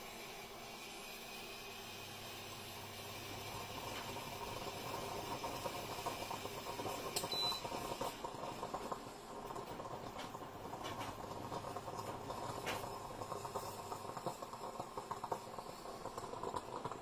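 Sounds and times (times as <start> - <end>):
moka pot hissing and crackling: 0.0 - 17.0
short beep: 7.3 - 7.6.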